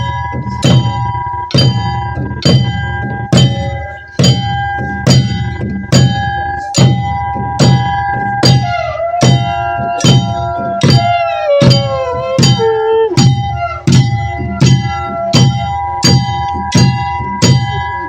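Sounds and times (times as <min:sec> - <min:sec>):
barrel drum beating: 0:00.0 - 0:18.0.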